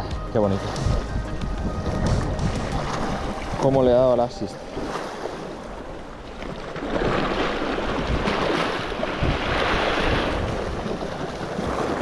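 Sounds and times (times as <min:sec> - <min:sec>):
sea waves washing against rocks: 0:00.4 - 0:12.0.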